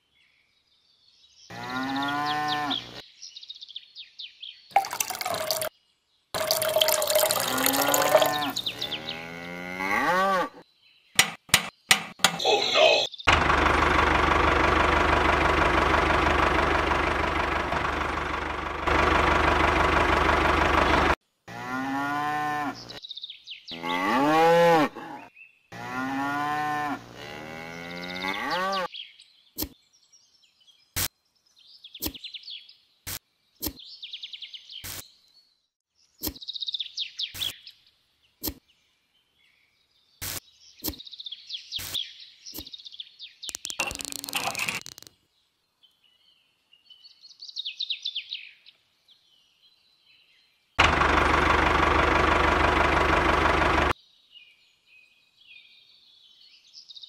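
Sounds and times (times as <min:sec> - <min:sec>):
birds chirping: 0:00.0 - 0:13.3, 0:27.6 - 0:50.8
cattle mooing: 0:01.5 - 0:03.0, 0:07.7 - 0:10.6
tractor engine running: 0:13.3 - 0:21.2, 0:50.8 - 0:54.0
sharp clicks: 0:43.5 - 0:45.2.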